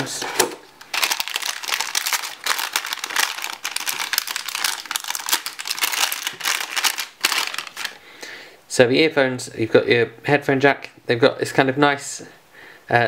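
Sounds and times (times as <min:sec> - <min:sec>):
plastic bag crinkling: 0:00.8 - 0:08.0.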